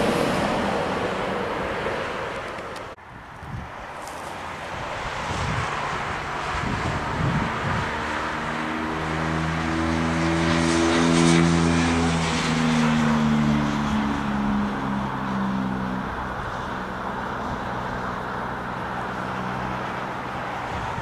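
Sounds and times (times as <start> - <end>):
train passing: 0.0 - 3.0.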